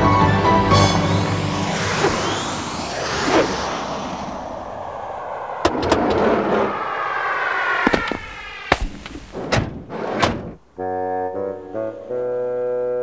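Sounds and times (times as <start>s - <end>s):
held brass chord: 0.0s - 1.4s, 10.8s - 13.0s
whooshing sound falling in pitch: 0.4s - 10.2s.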